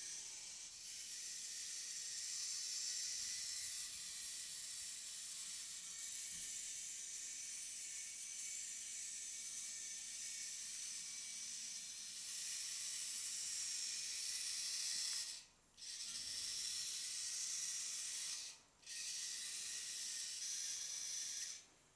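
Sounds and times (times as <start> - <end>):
robot servos whirring: 0.0 - 21.7.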